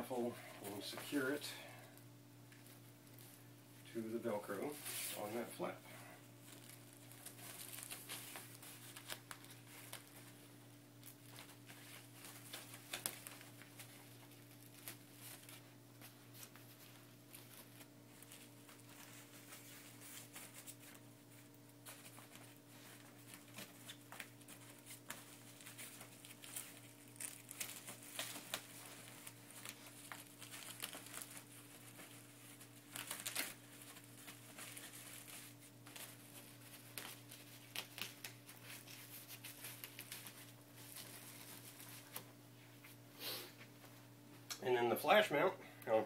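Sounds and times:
cloth rustling: 0:02.5 - 0:44.0.

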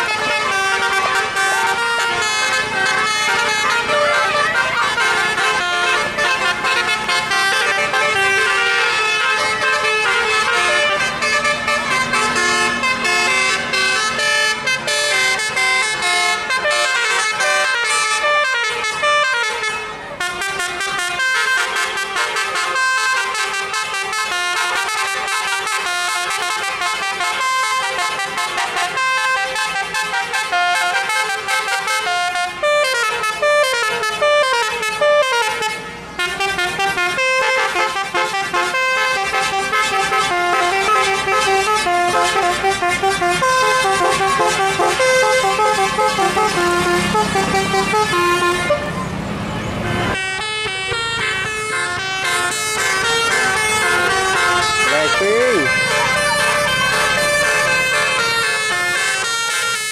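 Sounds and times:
bus horns playing melody: 0:00.0 - 0:59.9.

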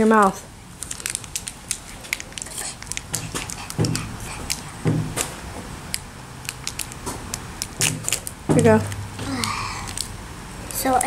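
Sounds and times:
plastic wrapper crackling: 0:00.2 - 0:03.8, 0:06.4 - 0:10.1.

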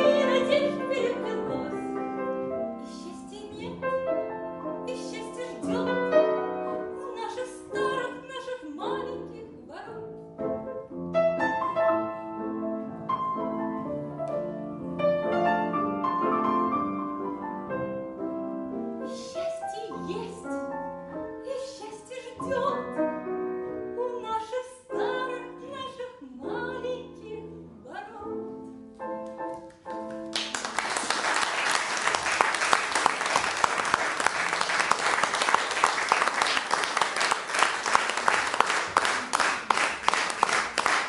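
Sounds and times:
woman singing: 0:00.0 - 0:02.0, 0:02.8 - 0:03.9, 0:04.8 - 0:10.0, 0:19.1 - 0:20.7, 0:21.4 - 0:23.1, 0:23.8 - 0:28.5
grand piano: 0:00.0 - 0:41.0
audience applause: 0:30.2 - 0:41.0.

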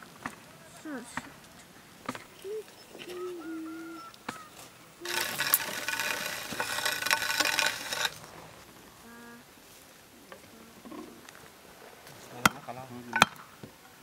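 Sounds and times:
branches rustling and crackling: 0:00.0 - 0:14.0
crackle and snapping: 0:04.1 - 0:08.4
scattered clicks: 0:05.0 - 0:08.3.

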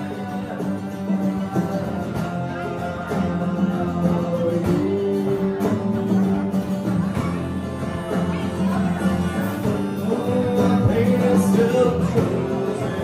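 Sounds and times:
acoustic guitars strummed: 0:00.0 - 0:13.0
drum kit: 0:00.0 - 0:13.0
electric bass: 0:00.0 - 0:13.0
man singing: 0:00.0 - 0:13.0.

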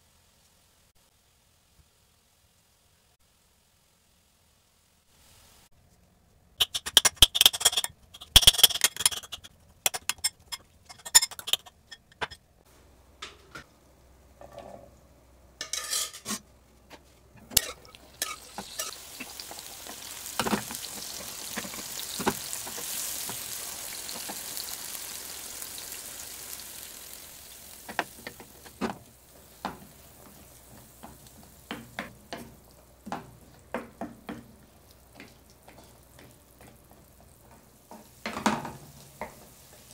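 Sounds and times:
chickpeas sizzling in hot oil: 0:00.0 - 0:05.8, 0:06.6 - 0:11.9, 0:17.4 - 0:39.9
potato mashed in glass bowl: 0:06.6 - 0:11.9.

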